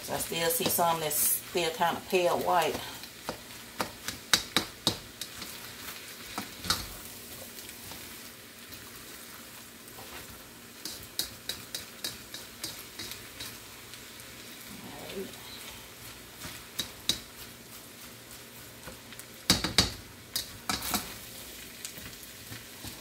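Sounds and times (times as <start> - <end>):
low steady sizzle: 0.0 - 23.0
spatula scraping frying pan: 9.9 - 13.8, 20.3 - 21.3.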